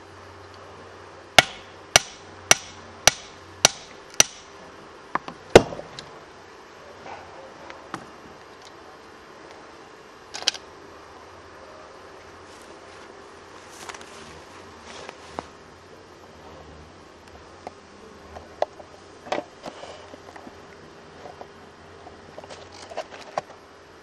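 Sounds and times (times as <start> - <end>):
sledgehammer striking steel wedges: 1.4 - 4.6.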